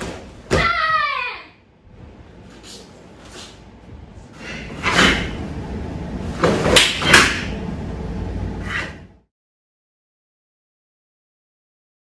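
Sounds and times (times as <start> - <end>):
arms slapping in strikes: 6.4 - 7.5.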